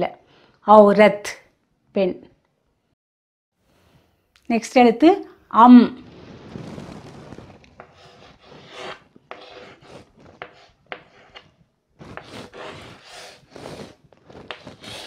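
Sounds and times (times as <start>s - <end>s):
chalk scratching on a chalkboard: 7.8s - 15.0s.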